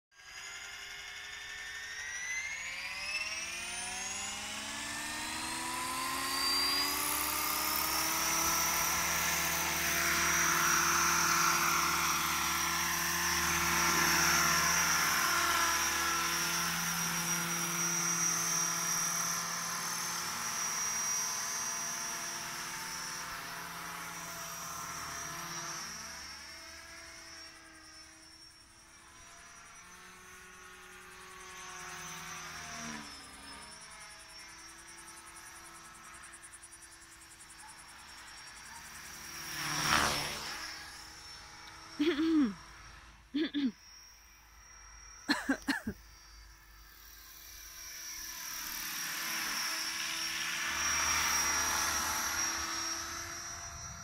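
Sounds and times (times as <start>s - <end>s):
model helicopter rotor whine: 0.1s - 54.0s.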